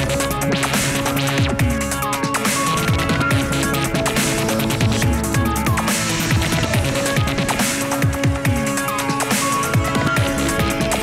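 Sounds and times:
electronic music with fast beat: 0.0 - 11.0.

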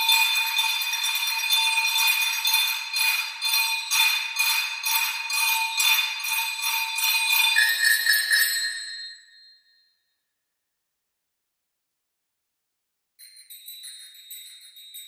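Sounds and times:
metallic percussion jingling and ringing: 5.4 - 9.5, 13.2 - 15.0.

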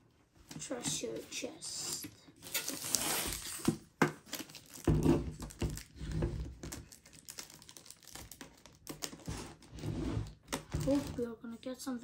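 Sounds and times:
packaging crinkling: 2.4 - 9.7.

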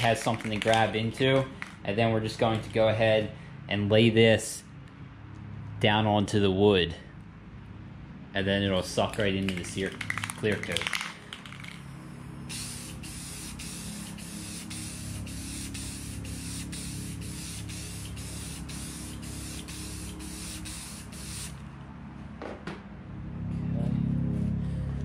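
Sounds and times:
aerosol spray can hissing: 12.4 - 21.6.

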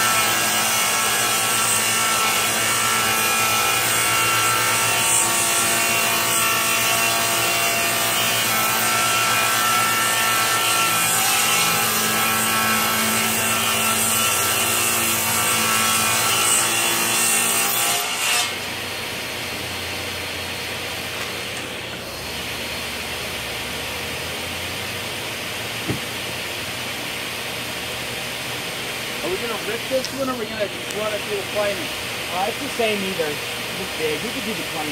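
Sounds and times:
table saw ripping wood: 0.0 - 18.8.

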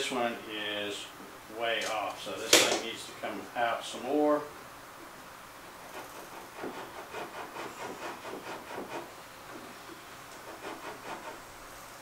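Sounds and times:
rubbing and scraping strokes: 5.7 - 11.6.

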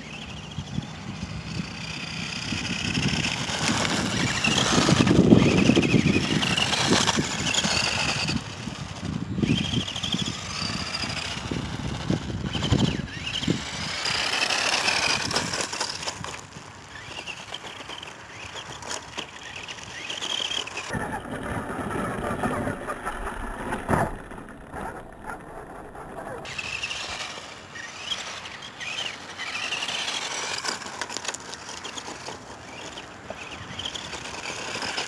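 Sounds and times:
electric motor and gears whining: 0.0 - 35.0
tyres on pavement: 0.0 - 35.0.

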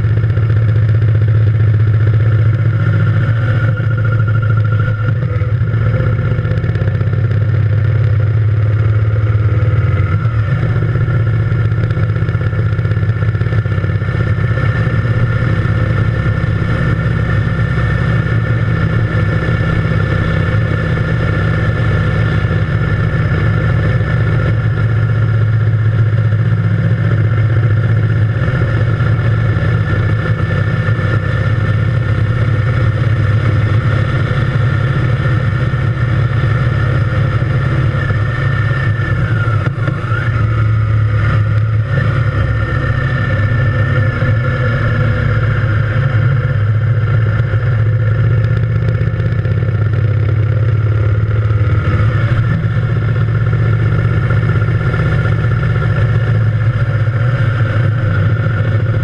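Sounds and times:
motorcycle engine cruising: 0.0 - 59.0.

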